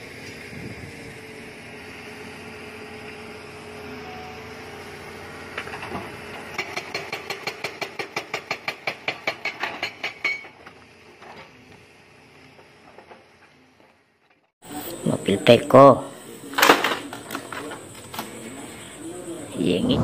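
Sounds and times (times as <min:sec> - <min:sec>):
excavator diesel engine running: 0:00.0 - 0:15.4
hydraulic breaker hammering rock: 0:05.5 - 0:10.9.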